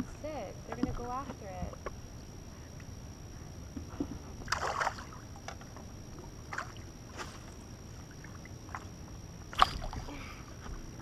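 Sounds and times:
low steady rumble: 0:00.0 - 0:11.0
water lapping against boat hull: 0:08.0 - 0:10.8.

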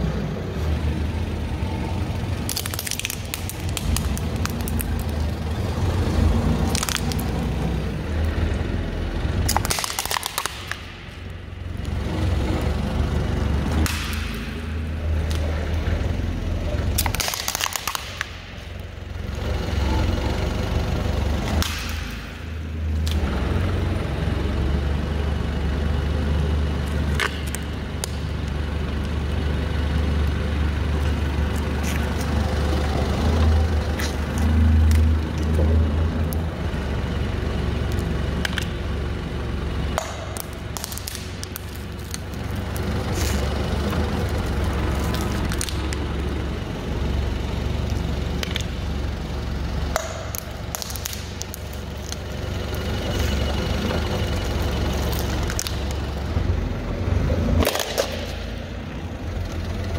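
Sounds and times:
forklift engine rumbling: 0:00.0 - 0:59.9
plastic containers crunching: 0:09.5 - 0:10.9, 0:17.0 - 0:18.4.

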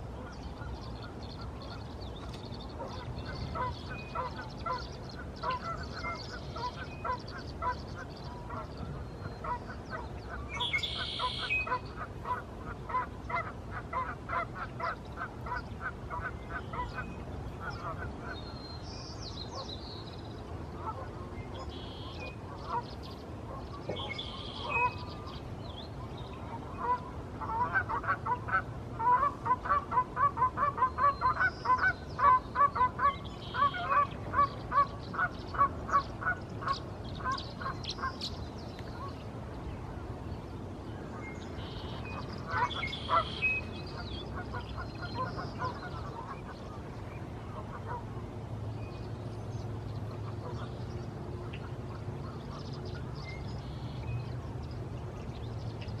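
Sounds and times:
small birds chirping: 0:00.1 - 0:12.0
goose honking: 0:09.4 - 0:18.1, 0:42.5 - 0:43.4.

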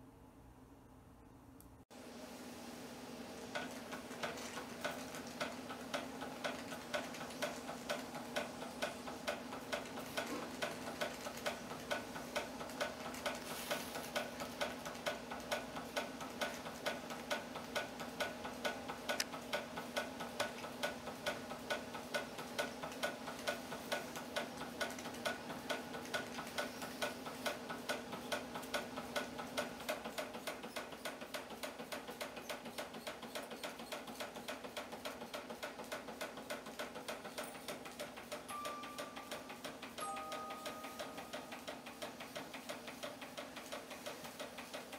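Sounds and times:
toy steam engine clicking: 0:03.5 - 0:44.9.

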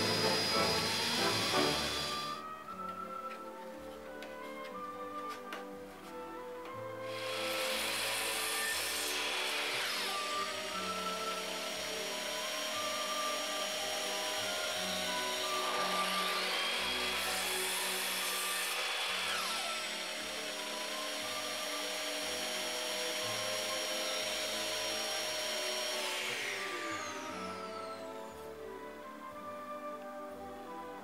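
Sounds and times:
saw cutting wood: 0:00.0 - 0:02.4, 0:07.0 - 0:28.6
mitre saw motor whining: 0:00.0 - 0:02.5, 0:07.0 - 0:29.0.

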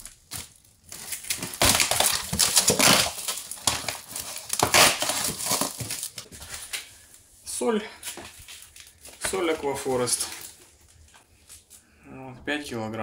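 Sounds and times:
plastic wrap crinkling: 0:00.0 - 0:07.3, 0:07.9 - 0:11.8
cardboard flaps rustling: 0:08.1 - 0:11.2.

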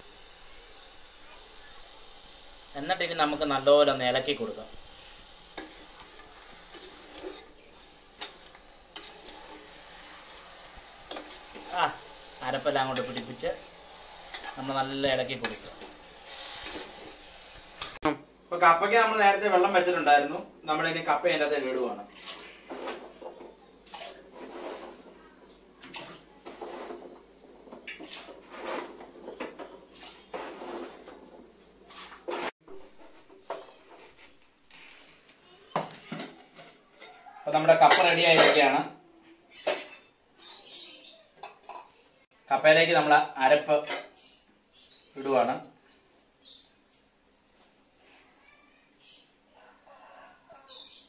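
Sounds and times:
spoon mixing food in a pot: 0:00.3 - 0:18.0.

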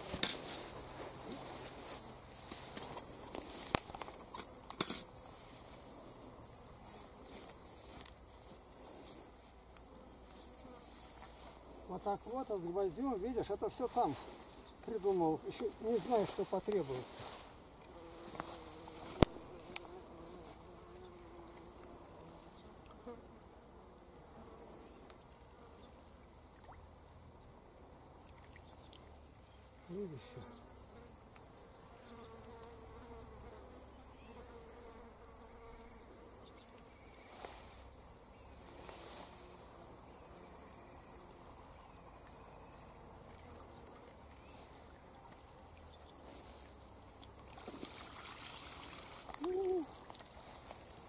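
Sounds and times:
tall grass rustling: 0:00.0 - 0:20.8, 0:21.5 - 0:22.6, 0:36.8 - 0:51.0
insect buzzing: 0:00.0 - 0:26.0, 0:29.8 - 0:51.0.

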